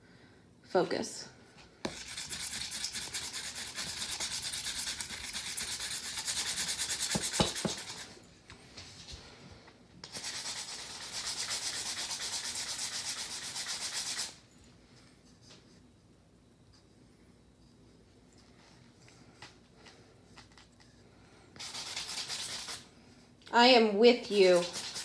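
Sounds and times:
hand sanding a cup: 0:01.9 - 0:08.2, 0:10.0 - 0:14.4, 0:21.6 - 0:22.8, 0:24.3 - 0:25.0.

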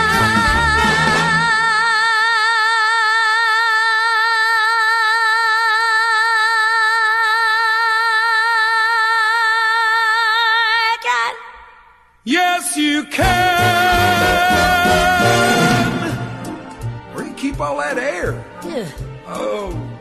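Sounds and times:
band accompaniment: 0:13.2 - 0:19.2.

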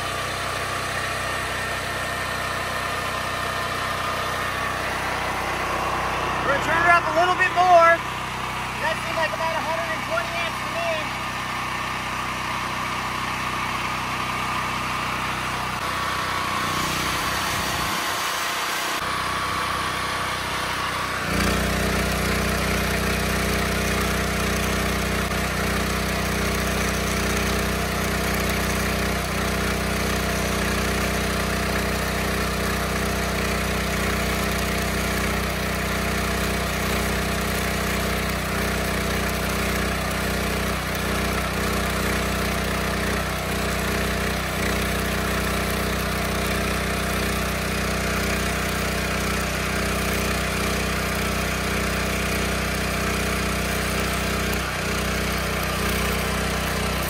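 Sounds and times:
generator engine running: 0:00.0 - 0:57.0
welding arc crackling: 0:03.6 - 0:12.3, 0:20.9 - 0:57.0.

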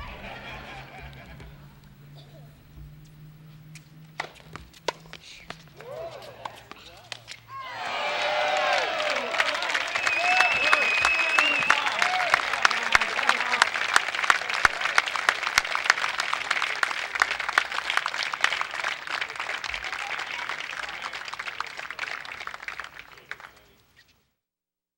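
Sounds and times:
crowd applauding: 0:00.0 - 0:01.6, 0:05.8 - 0:23.8.

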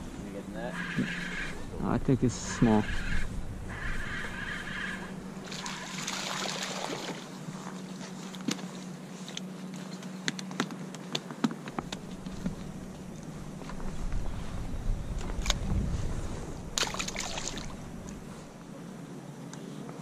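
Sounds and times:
water splashing: 0:05.4 - 0:07.3, 0:16.8 - 0:18.2
fish flopping on wooden dock: 0:16.8 - 0:17.8.

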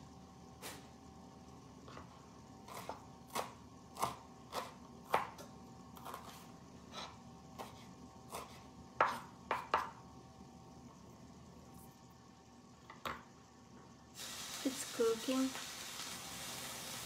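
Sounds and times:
knife chopping on wooden board: 0:02.7 - 0:10.0.

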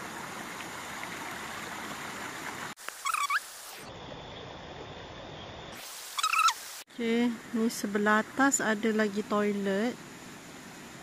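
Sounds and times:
stream running over rocks: 0:00.0 - 0:03.7
short rising animal call: 0:06.2 - 0:06.6.

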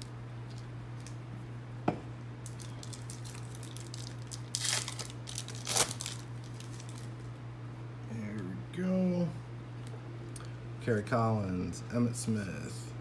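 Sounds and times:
card pack wrapper crinkling: 0:02.4 - 0:07.2.

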